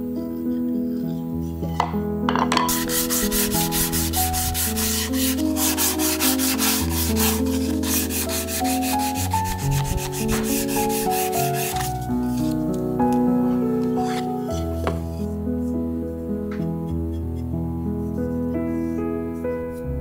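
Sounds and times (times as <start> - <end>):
background music: 0.0 - 20.0
sandpaper rubbing on wood: 2.7 - 12.6.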